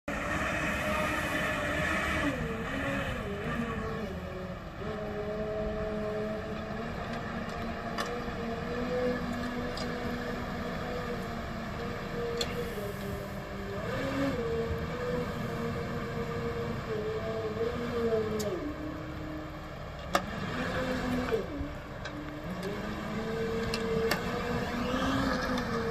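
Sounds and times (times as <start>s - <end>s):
off-road vehicle engine running: 0.1s - 25.9s.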